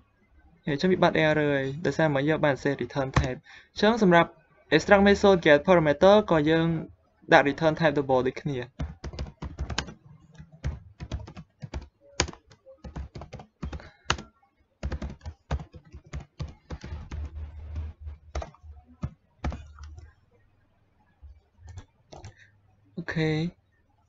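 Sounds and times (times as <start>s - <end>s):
keyboard typing clicks: 8.7s - 20.2s, 21.7s - 22.4s.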